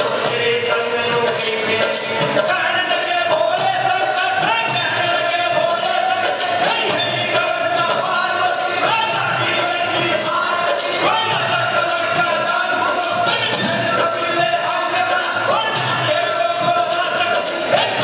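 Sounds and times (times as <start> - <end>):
bells and cymbals beating: 0.0 - 18.0.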